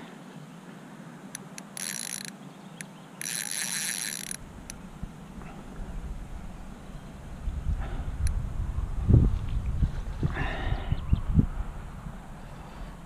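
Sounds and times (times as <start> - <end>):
fishing reel gears whirring: 1.6 - 2.4, 3.2 - 4.8.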